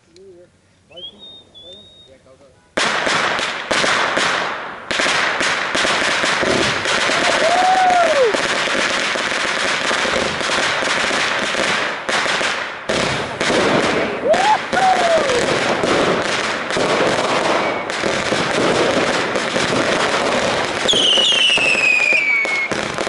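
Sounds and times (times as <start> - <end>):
fireworks bangs and crackling: 2.7 - 23.0
hiss of fireworks shots: 2.8 - 23.0.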